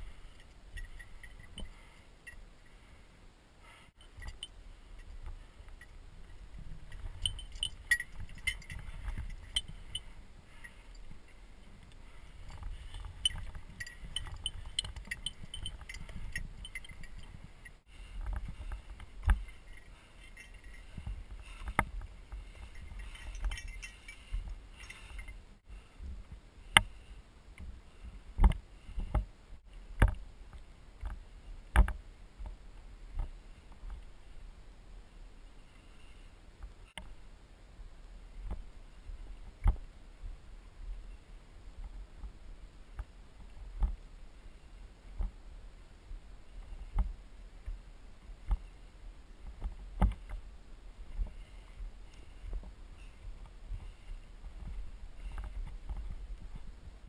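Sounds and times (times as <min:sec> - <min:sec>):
metal climbing gear clinking: 0:00.0 - 0:03.0, 0:03.6 - 0:25.6
low rumble of handling: 0:00.0 - 0:34.6.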